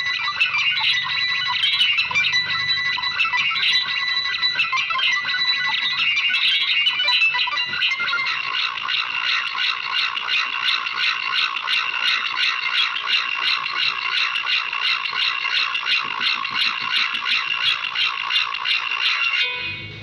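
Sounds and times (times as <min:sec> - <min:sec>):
dense synthesized notes: 0:00.0 - 0:11.9, 0:16.5 - 0:20.0.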